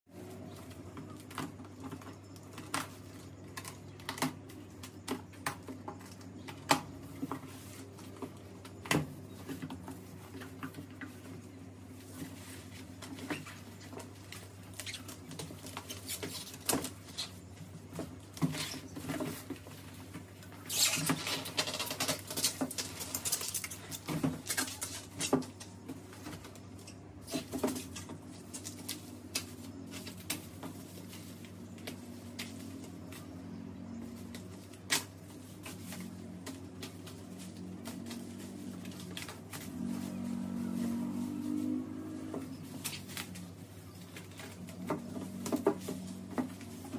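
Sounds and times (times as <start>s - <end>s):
bubble-wrap rustling: 5.8s - 46.9s
cardboard flaps knocking and scraping: 33.8s - 46.9s.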